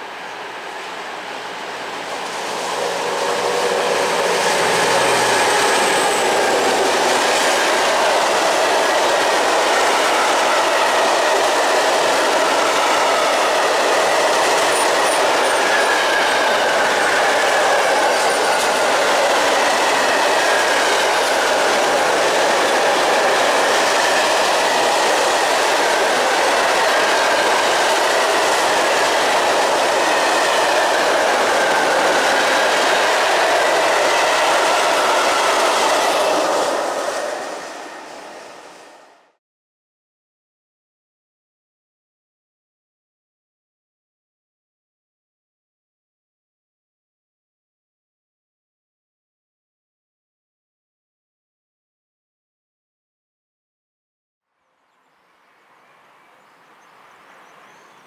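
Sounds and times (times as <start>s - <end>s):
train wheels clattering on rails: 2.1s - 38.7s.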